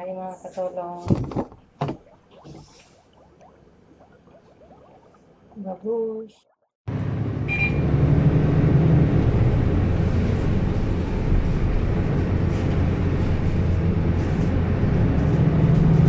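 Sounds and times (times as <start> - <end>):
bus engine and road rumble: 6.9 - 16.0.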